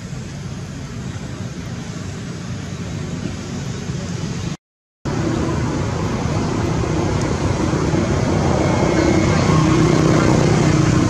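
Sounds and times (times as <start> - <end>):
motor vehicle running: 5.1 - 11.0.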